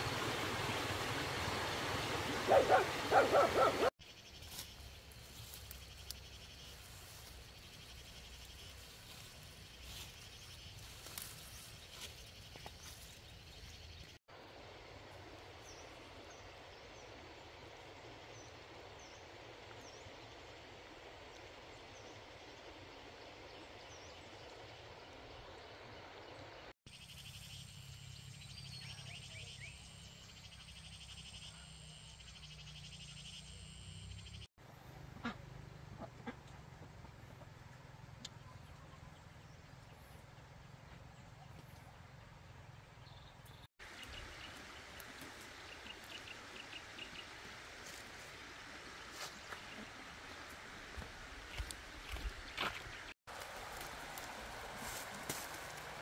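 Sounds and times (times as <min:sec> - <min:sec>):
river flowing: 0:00.0 - 0:03.9, 0:43.8 - 0:56.0
birds chirping: 0:00.0 - 0:14.2
snaps in tall grass: 0:53.3 - 0:56.0.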